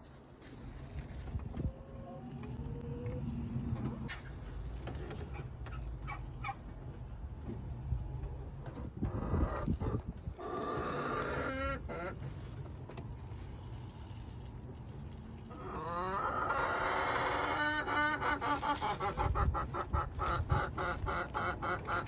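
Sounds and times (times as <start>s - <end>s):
straw rustling: 0.0s - 2.8s, 9.6s - 17.4s, 18.3s - 22.0s
hens squawking: 9.1s - 12.5s, 15.5s - 22.0s.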